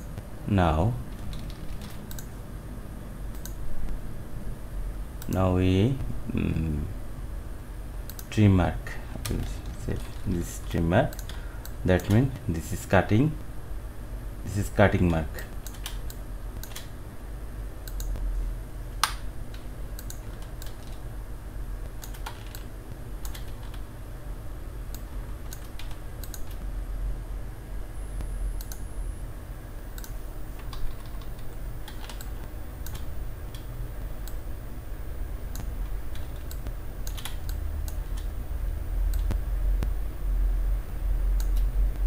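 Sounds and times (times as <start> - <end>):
low steady hum: 0.0 - 42.0
computer keyboard and mouse clicks: 1.1 - 2.3, 9.2 - 12.2, 15.6 - 16.9, 17.9 - 18.2, 19.0 - 21.0, 22.0 - 23.8, 25.0 - 26.6, 30.0 - 34.4, 35.5 - 38.3.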